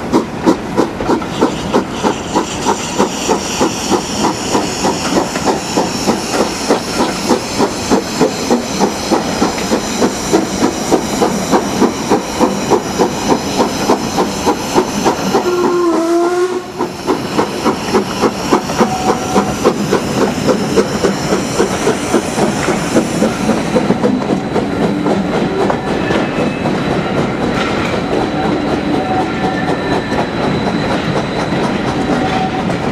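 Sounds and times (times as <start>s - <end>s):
steam locomotive exhaust beats: 0.0s - 32.9s
train whistle: 1.2s - 11.4s, 14.2s - 21.8s, 28.0s - 32.9s.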